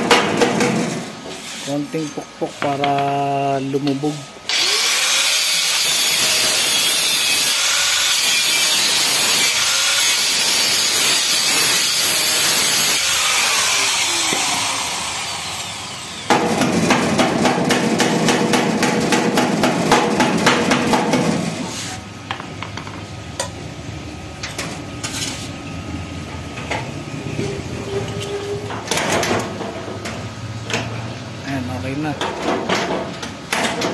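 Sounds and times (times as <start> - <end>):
power drill grinding on steel: 4.5 - 16.3.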